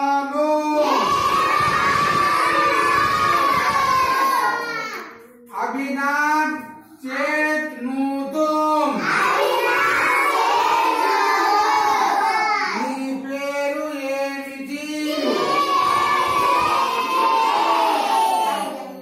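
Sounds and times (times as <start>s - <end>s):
children singing in chorus: 0.8s - 5.2s, 9.0s - 12.8s, 15.1s - 19.0s.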